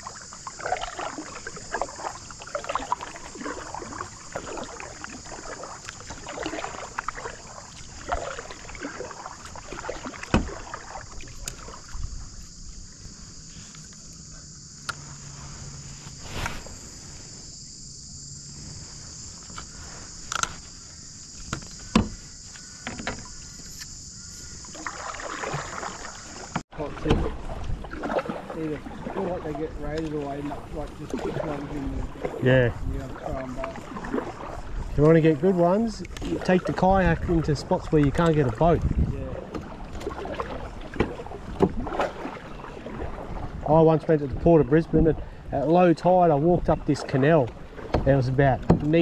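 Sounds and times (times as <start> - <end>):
paddle strokes splashing in water: 0.0 - 17.3, 18.4 - 49.0
high insect buzz: 0.0 - 26.6.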